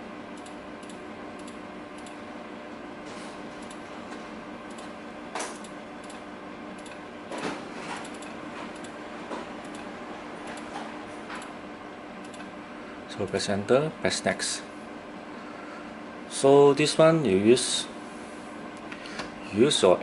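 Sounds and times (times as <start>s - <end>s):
computer mouse clicking: 4.7s - 4.9s, 6.8s - 7.0s, 9.6s - 9.9s, 12.2s - 12.5s.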